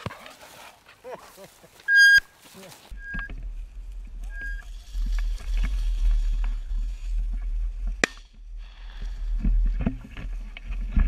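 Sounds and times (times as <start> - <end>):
dry grass rustling: 0.0 - 11.0
wind rumble on microphone: 3.0 - 11.0.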